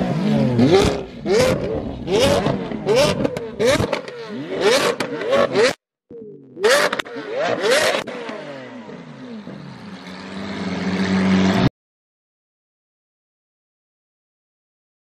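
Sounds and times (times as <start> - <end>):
car engine revving: 0.0 - 11.7.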